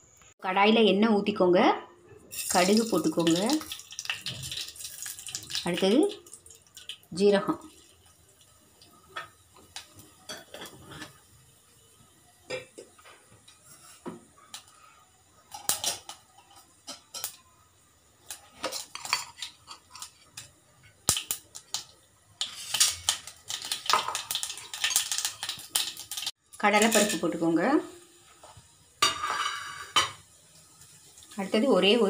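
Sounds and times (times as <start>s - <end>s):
seeds popping in hot oil: 2.3s - 11.2s, 18.2s - 27.4s
seeds ticking on metal sides: 2.4s - 7.1s.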